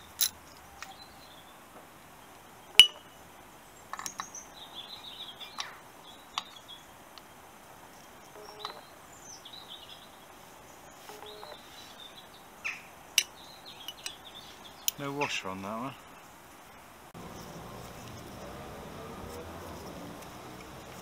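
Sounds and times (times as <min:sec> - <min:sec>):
tool clinking on metal nut: 0:00.0 - 0:01.0
birds chirping: 0:00.0 - 0:21.0.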